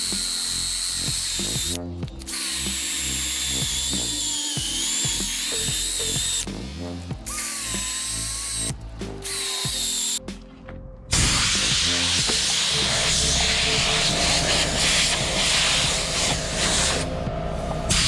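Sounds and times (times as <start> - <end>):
power drill scrub brush grinding: 0.0 - 6.5.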